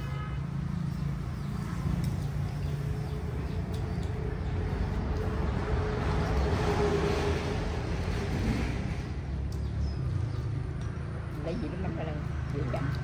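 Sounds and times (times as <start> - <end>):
chopsticks clicking against bowls: 3.5 - 4.5.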